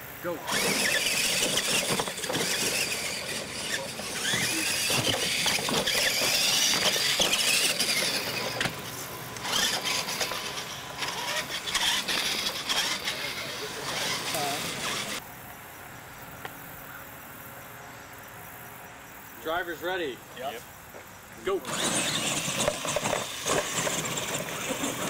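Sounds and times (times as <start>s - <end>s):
rc truck motors whining: 0.2s - 15.2s, 21.4s - 25.0s.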